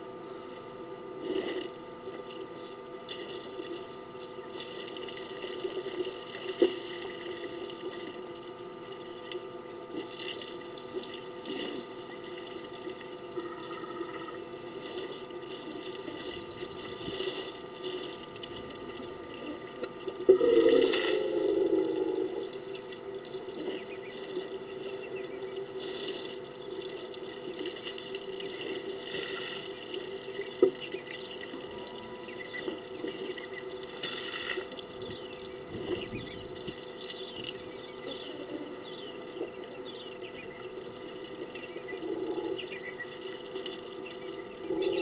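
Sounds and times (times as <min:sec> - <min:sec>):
faint steady hum: 0:00.0 - 0:45.0
water splashing and dribbling: 0:01.2 - 0:45.0
loud low noise: 0:20.2 - 0:22.6.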